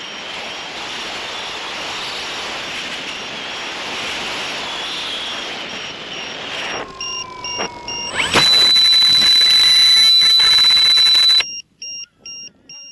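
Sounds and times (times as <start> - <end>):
wind and flight noise: 0.0 - 11.4
high-pitched electronic tone: 4.8 - 11.4
short high electronic beeps: 5.6 - 12.9.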